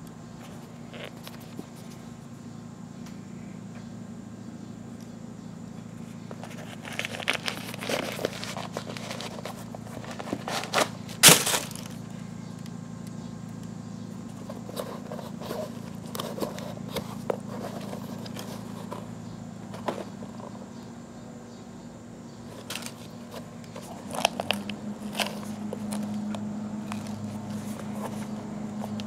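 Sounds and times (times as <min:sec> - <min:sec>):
steady low hum: 0:00.0 - 0:29.0
shoes knocking and scraping: 0:06.2 - 0:12.0, 0:14.3 - 0:20.7, 0:22.5 - 0:29.0
tissue paper rustling and crackling: 0:06.4 - 0:11.9.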